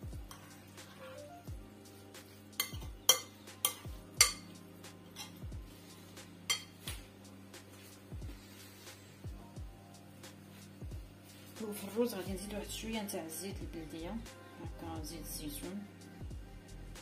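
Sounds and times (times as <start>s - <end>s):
background music with deep bass: 0.0s - 17.0s
spoon clinking against glass bowl: 2.6s - 4.5s, 6.5s - 6.8s.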